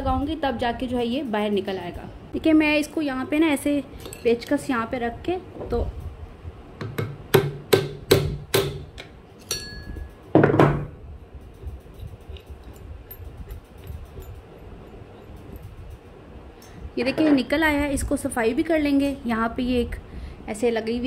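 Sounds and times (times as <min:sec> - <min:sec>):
short metallic ring: 0:09.4 - 0:10.3.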